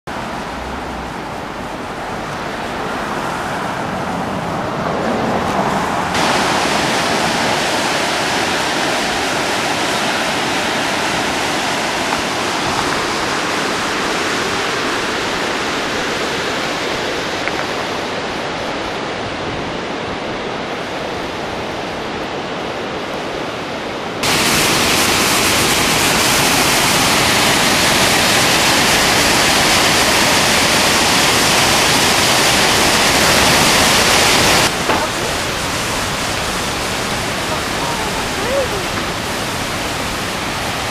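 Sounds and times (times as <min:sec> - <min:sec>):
steady rushing noise: 0:00.1 - 0:40.9
waterfall pouring: 0:06.1 - 0:16.6, 0:24.2 - 0:40.9.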